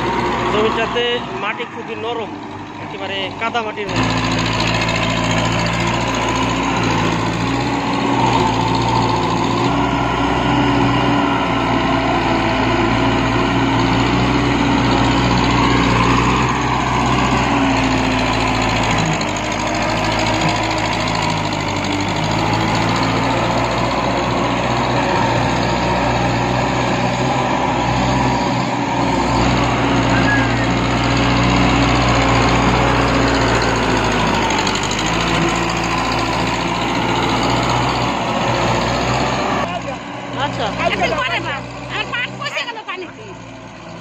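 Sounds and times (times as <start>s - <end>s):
tractor diesel engine under load: 0.0s - 44.0s.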